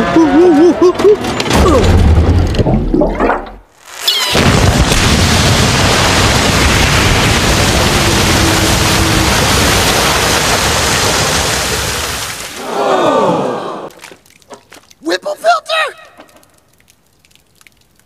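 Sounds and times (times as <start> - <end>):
water gushing from tanker truck: 7.2 - 13.0.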